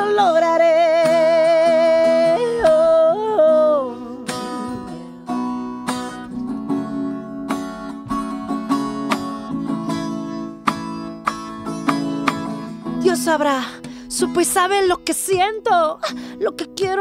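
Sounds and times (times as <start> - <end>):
woman singing with vibrato: 0.0 - 5.2, 12.9 - 17.0
electric guitar strumming chords: 0.0 - 17.0.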